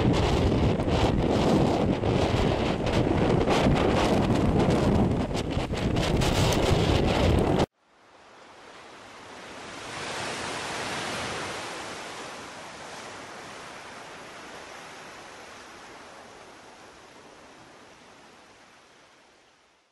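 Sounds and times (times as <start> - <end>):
wind buffeting microphone: 0.0 - 7.7
ocean surf rushing: 8.5 - 19.6.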